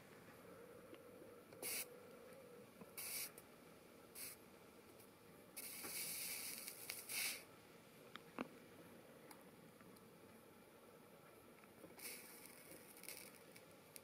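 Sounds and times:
solder sizzling: 0:05.6 - 0:07.5.

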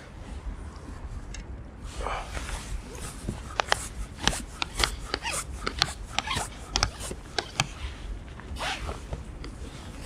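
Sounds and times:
low wind rumble: 0:00.0 - 0:10.0
landing net clicking and rubbing: 0:03.0 - 0:07.9.

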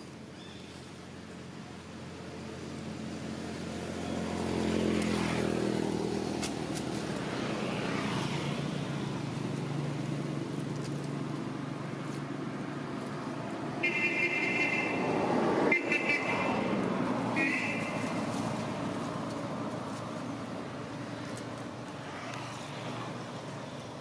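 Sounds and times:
vehicle driving past: 0:02.4 - 0:23.6
engine running steadily: 0:05.8 - 0:15.1.

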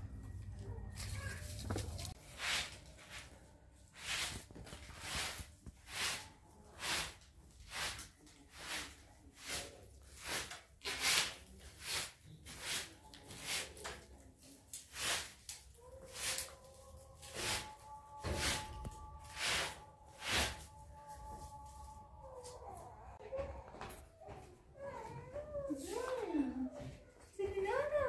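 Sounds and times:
broom sweeping a carpet: 0:01.9 - 0:22.6.

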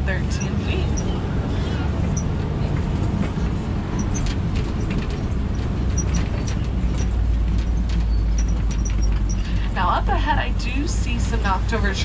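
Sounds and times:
truck engine and road rumble: 0:00.0 - 0:12.0
rattles and clicks: 0:02.0 - 0:09.8.

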